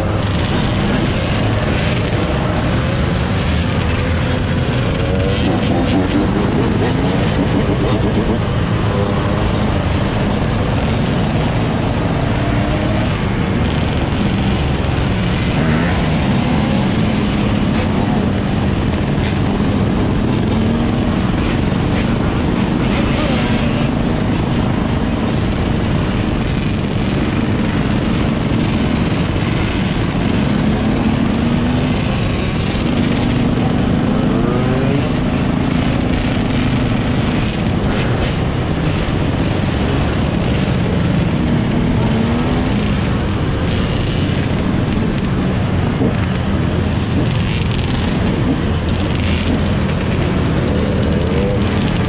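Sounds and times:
dirt bike engines running: 0:00.0 - 0:52.0
dirt bike revving: 0:00.0 - 0:52.0.

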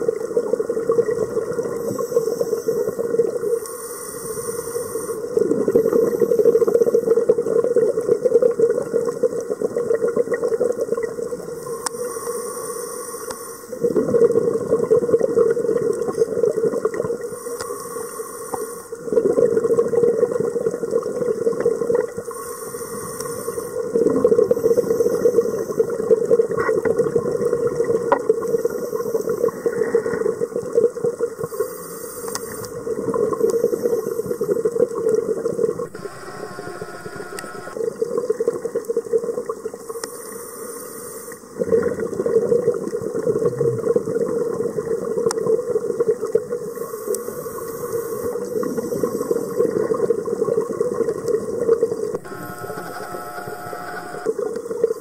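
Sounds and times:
diver breathing through regulator: 0:01.8 - 0:07.2, 0:11.6 - 0:13.9, 0:17.2 - 0:19.0, 0:22.2 - 0:26.0, 0:31.4 - 0:32.8
exhaled bubbles rushing: 0:05.2 - 0:11.6, 0:13.7 - 0:17.3, 0:18.9 - 0:22.3, 0:23.8 - 0:28.8, 0:41.4 - 0:46.8.

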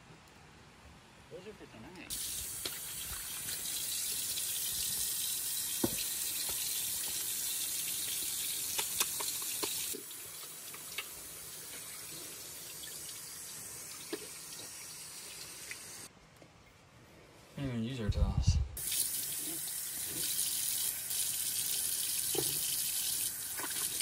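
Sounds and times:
hands washing with soap: 0:02.1 - 0:16.0, 0:18.8 - 0:24.0
tap water running into sink: 0:02.1 - 0:16.0, 0:18.8 - 0:24.0
small knocks and taps: 0:05.8 - 0:06.6.

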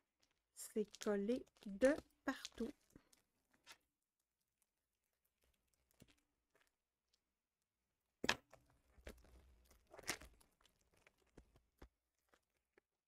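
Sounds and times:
plastic wrapping crinkling and tearing: 0:08.6 - 0:12.7.

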